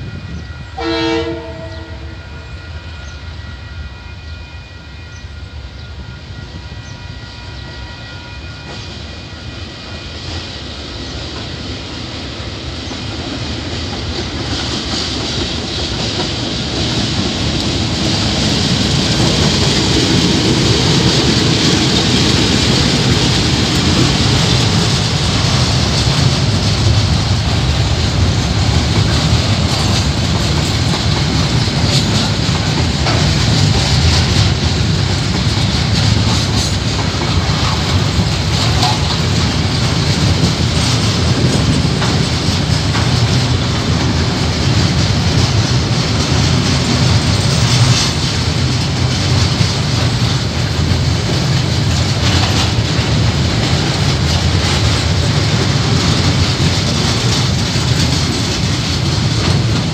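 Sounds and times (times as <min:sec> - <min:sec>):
locomotive engine rumble: 0:11.2 - 0:59.9
train wheel clicks: 0:12.8 - 0:59.9
freight wagons rumbling and rattling: 0:12.9 - 0:59.9.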